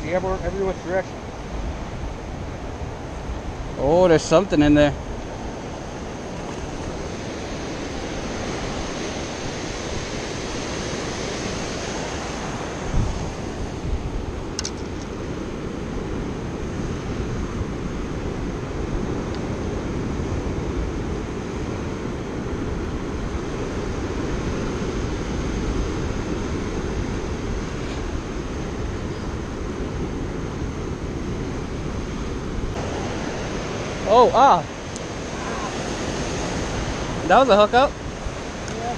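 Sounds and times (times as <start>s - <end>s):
wind rumbling on microphone: 0.0s - 38.9s
surf breaking against rocks: 31.1s - 38.9s.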